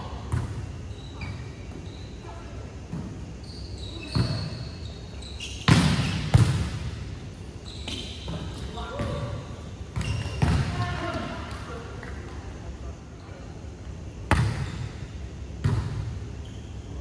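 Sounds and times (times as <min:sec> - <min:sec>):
sneakers squeaking on court: 0:00.3 - 0:02.3, 0:02.9 - 0:06.8, 0:07.6 - 0:10.9, 0:14.3 - 0:17.0.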